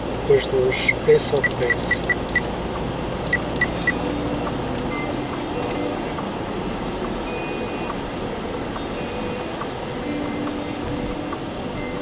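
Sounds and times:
car road and engine noise: 0.0s - 12.0s
short electronic beeps: 1.4s - 2.5s, 3.3s - 4.0s.

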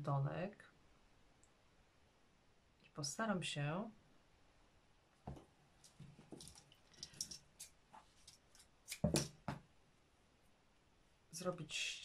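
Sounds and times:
thread rustling: 5.2s - 9.6s.

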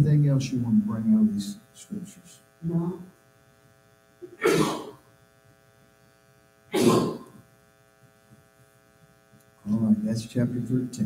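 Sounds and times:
electrical hum: 0.0s - 11.0s
man coughing: 4.2s - 5.0s, 6.7s - 7.4s.

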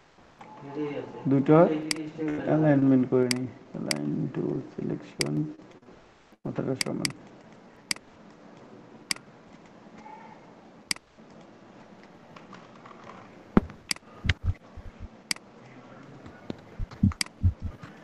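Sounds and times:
mouse and keyboard clicks: 13.8s - 15.4s, 16.8s - 18.0s.

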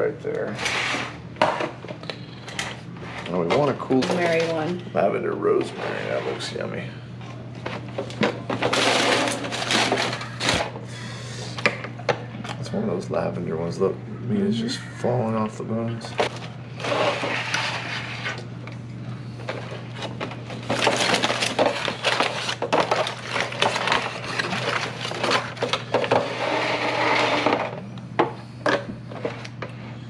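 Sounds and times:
steady low hum: 0.0s - 30.0s
aluminium foil crinkling: 19.4s - 26.3s.

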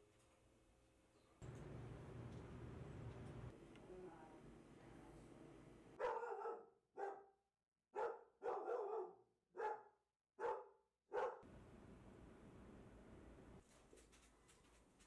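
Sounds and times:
dog barking: 6.0s - 11.4s.

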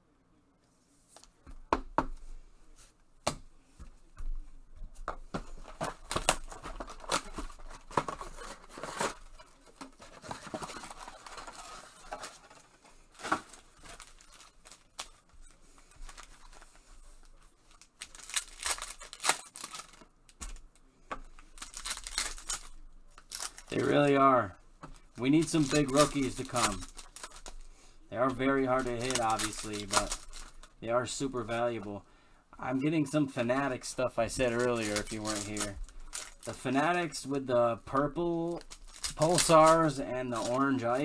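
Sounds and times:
wrappers crinkling and tearing: 5.6s - 20.7s, 21.3s - 24.2s, 25.0s - 31.6s, 33.9s - 41.0s.

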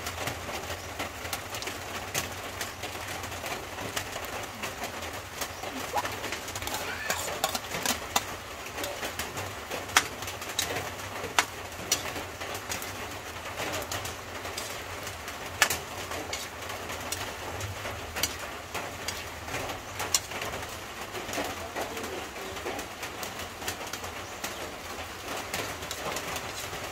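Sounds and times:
bird cooing: 4.5s - 7.8s
metal spatula scraping a wok: 6.0s - 19.5s, 20.1s - 20.7s, 25.6s - 26.9s.

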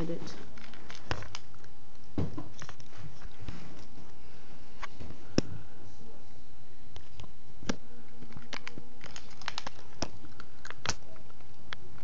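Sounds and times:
cat crunching dry kibble: 0.2s - 4.0s, 8.1s - 12.0s.

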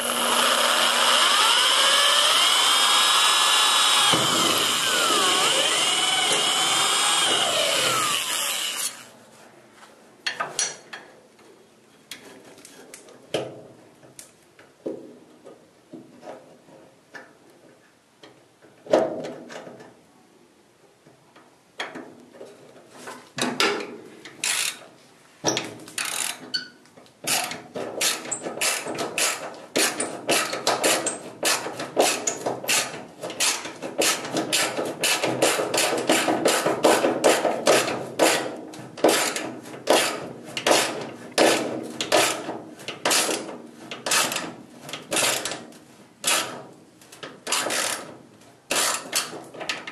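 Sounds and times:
ratchet wrench clicking: 24.4s - 24.8s.

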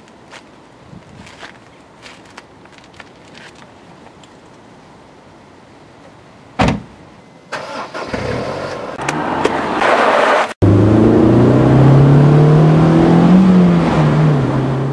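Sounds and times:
tyres on gravel: 0.0s - 4.6s
short thump: 6.6s - 7.0s
car engine accelerating: 7.6s - 14.9s.

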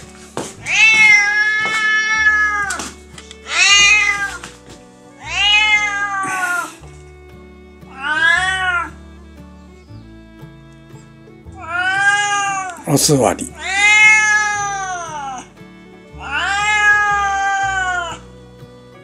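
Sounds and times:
background music: 0.0s - 19.0s
cat meowing hoarsely: 0.6s - 4.4s, 5.2s - 6.8s, 7.9s - 9.0s, 11.6s - 12.8s, 13.5s - 15.5s, 16.2s - 18.2s.

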